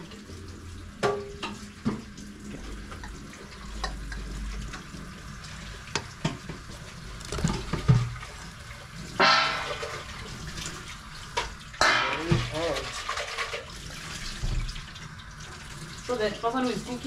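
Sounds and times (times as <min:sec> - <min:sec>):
water running from a tap: 0:00.0 - 0:17.0
wooden spatula knocking metal plate: 0:09.2 - 0:10.1, 0:11.8 - 0:12.7.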